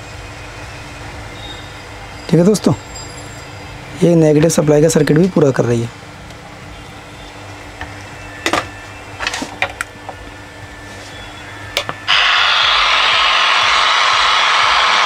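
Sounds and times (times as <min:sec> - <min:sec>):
low hum: 0:09.8 - 0:15.0.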